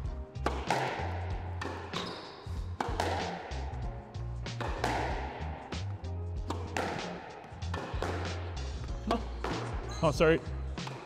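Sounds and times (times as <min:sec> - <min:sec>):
background music with bass line: 0:00.0 - 0:11.0
squash ball hits: 0:00.4 - 0:03.8, 0:04.5 - 0:05.8, 0:06.4 - 0:09.8.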